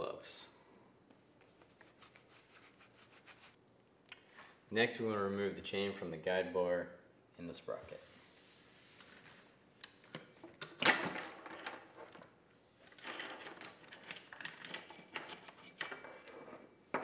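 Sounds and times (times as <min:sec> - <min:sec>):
chain links clinking and rattling: 0:12.8 - 0:17.0.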